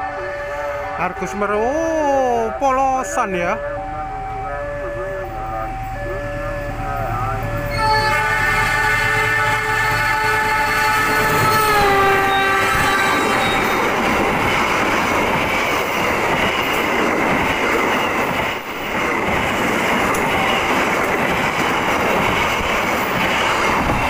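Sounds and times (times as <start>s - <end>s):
train horn: 3.5s - 13.9s
train wheels clattering on rails: 10.5s - 24.0s.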